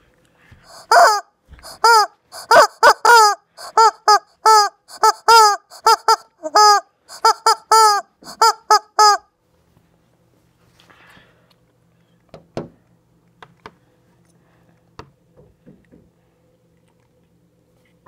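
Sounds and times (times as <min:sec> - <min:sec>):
rubber chicken toy squawking: 0:00.7 - 0:09.3.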